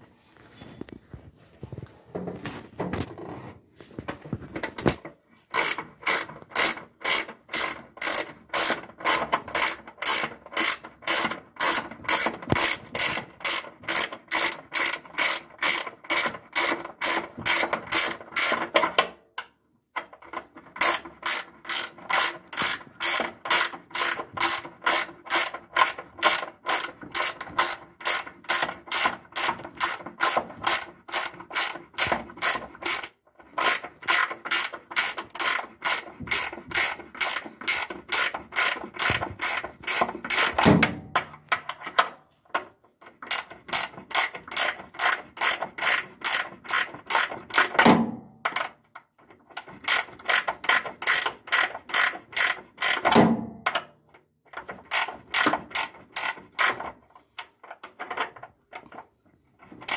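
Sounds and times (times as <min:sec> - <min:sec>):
ratchet wrench clicking: 0:05.5 - 0:18.6, 0:20.8 - 0:40.6, 0:49.8 - 0:53.1, 0:54.9 - 0:56.8.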